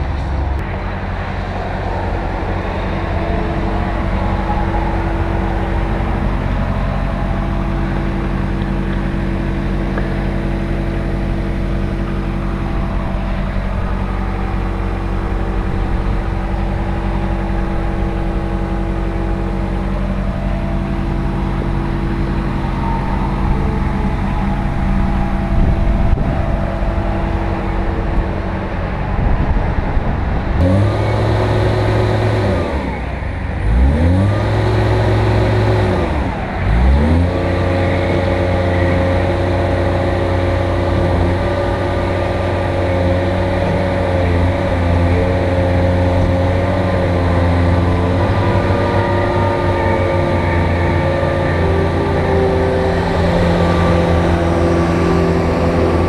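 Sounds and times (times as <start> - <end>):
diesel engine idling and revving: 0.0 - 56.0.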